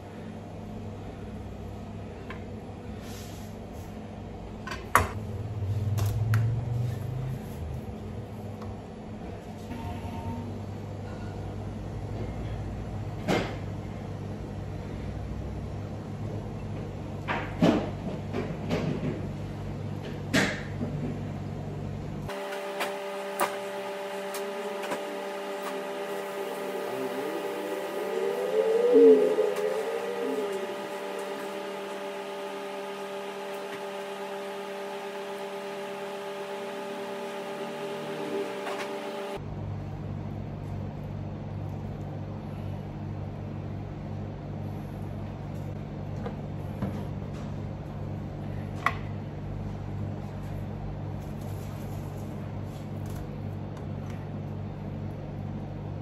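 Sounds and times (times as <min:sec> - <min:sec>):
steady hum: 0:00.0 - 0:17.3, 0:21.4 - 0:56.0
steady wavering tones: 0:25.1 - 0:33.5.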